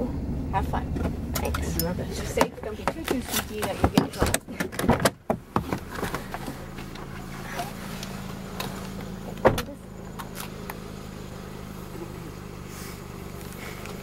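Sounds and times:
car engine idling: 0:00.0 - 0:14.0
car door slamming: 0:00.9 - 0:06.5, 0:08.6 - 0:10.5.

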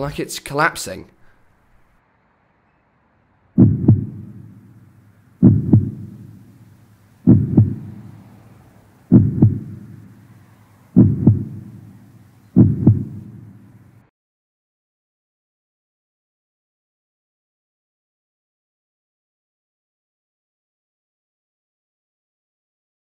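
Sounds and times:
heartbeat thumps: 0:03.6 - 0:04.8, 0:05.4 - 0:06.5, 0:07.2 - 0:08.2, 0:09.1 - 0:10.2, 0:11.0 - 0:12.0, 0:12.6 - 0:13.6.

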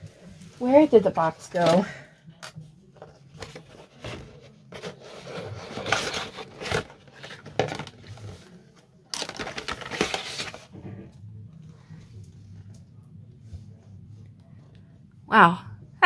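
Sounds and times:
packaging rustling and crinkling: 0:03.4 - 0:10.7.

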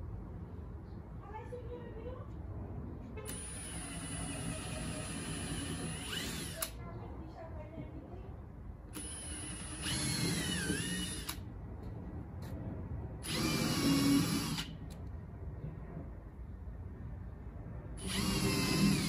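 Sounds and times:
cordless drill boring into wood: 0:03.3 - 0:06.7, 0:09.0 - 0:11.4, 0:13.2 - 0:14.7, 0:18.0 - 0:19.0.

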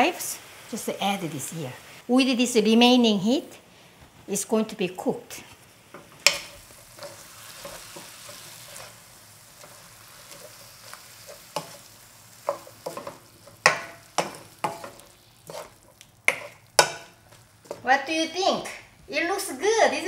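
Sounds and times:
vegetables sizzling in a wok: 0:00.0 - 0:20.0
wooden spatula knocking on pan: 0:12.5 - 0:15.0.

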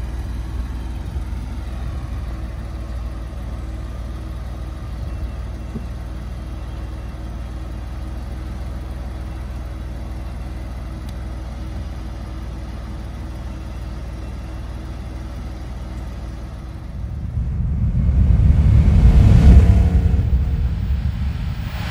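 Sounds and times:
convertible top motor hum: 0:00.0 - 0:21.8
car engine idling: 0:00.0 - 0:21.9
loud whoosh: 0:16.5 - 0:21.9.

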